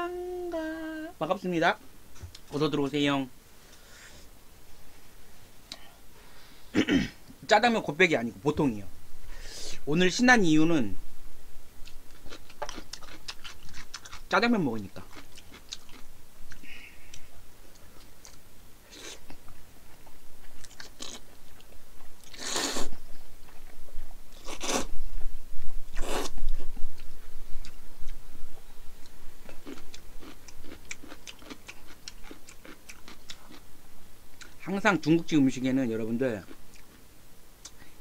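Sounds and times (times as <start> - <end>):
close-up chewing: 11.8 - 14.3, 15.0 - 24.9, 26.0 - 33.6, 36.4 - 37.0.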